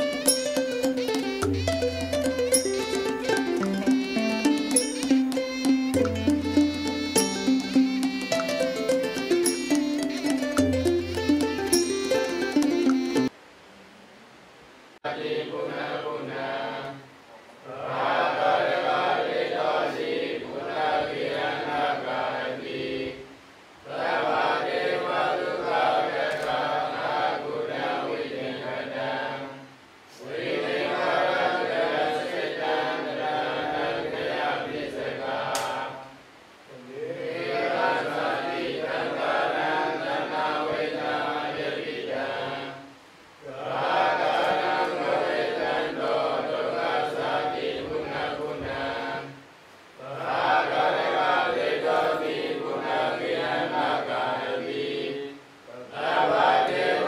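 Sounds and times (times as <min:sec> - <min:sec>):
monks chanting in unison: 0:15.0 - 0:23.2, 0:23.8 - 0:49.4, 0:50.0 - 0:57.0.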